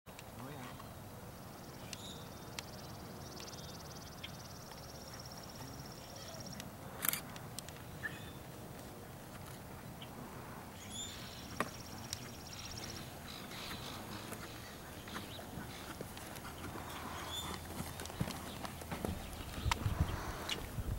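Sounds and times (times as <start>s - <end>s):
horse hoofbeats on sand: 13.6s - 20.6s.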